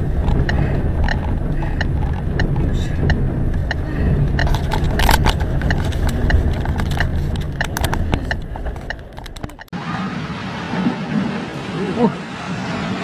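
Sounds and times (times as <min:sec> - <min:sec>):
objects knocking on a car: 0:00.0 - 0:09.7
storm wind buffeting a car: 0:00.0 - 0:13.0.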